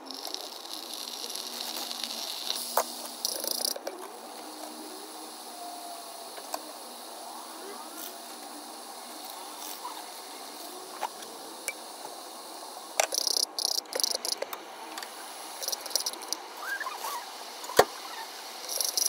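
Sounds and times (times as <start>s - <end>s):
crackling as sauce is stirred: 0.0s - 12.2s
noodles sizzling in a pot: 0.0s - 19.0s.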